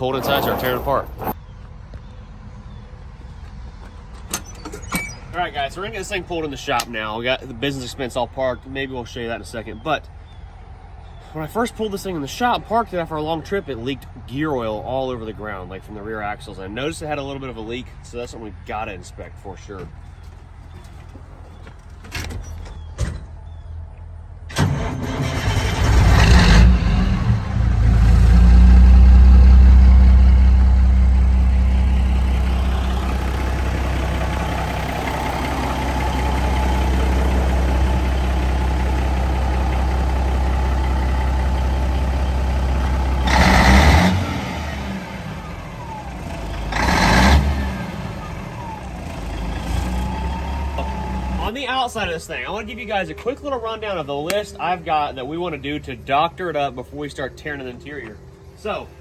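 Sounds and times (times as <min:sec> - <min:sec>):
diesel truck engine starting: 0:24.4 - 0:59.0.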